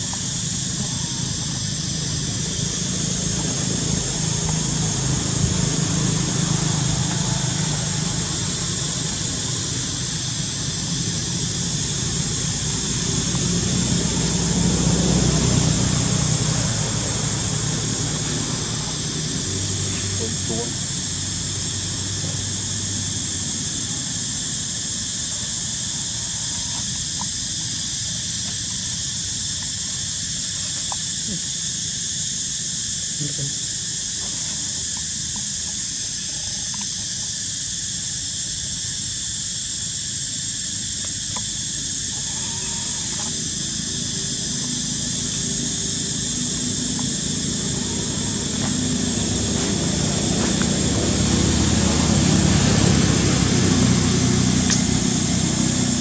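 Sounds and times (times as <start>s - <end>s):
high-pitched insect drone: 0.0s - 56.0s
faint ticks: 26.6s - 27.4s, 36.5s - 37.0s, 41.0s - 43.4s.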